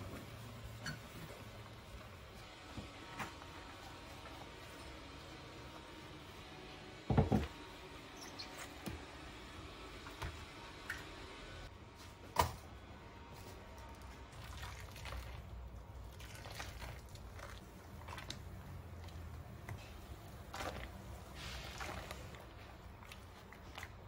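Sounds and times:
water poured into plastic basin: 14.4 - 18.4.

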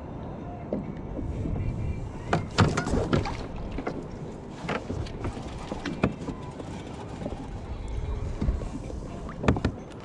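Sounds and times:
water slapping against hull: 2.3 - 7.7.

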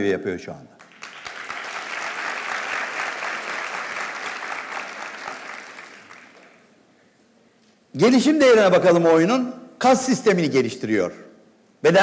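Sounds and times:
audience clapping: 0.8 - 6.8.

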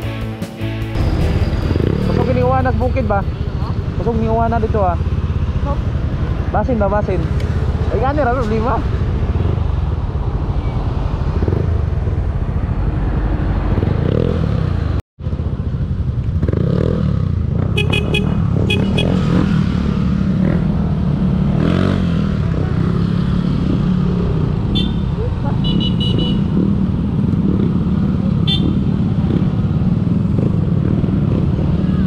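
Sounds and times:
scooter engine rumbling: 20.0 - 32.0.

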